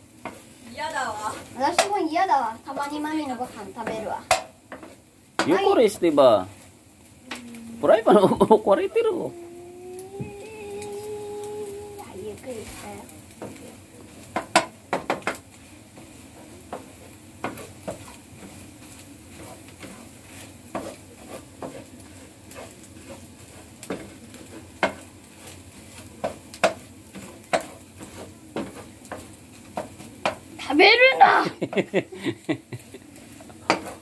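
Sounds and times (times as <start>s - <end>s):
eggs sizzling in a pan: 0.0s - 34.0s
spatula tapping and scraping pan: 0.1s - 0.6s, 1.2s - 2.1s, 2.7s - 5.7s, 12.7s - 30.5s, 33.1s - 34.0s.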